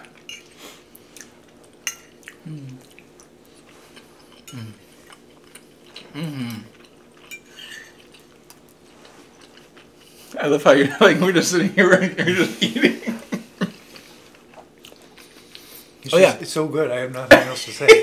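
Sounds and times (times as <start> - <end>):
forks clinking on plates: 0.2 - 0.5, 7.3 - 8.0
person humming mm: 2.4 - 2.8, 4.5 - 4.8, 6.1 - 6.7.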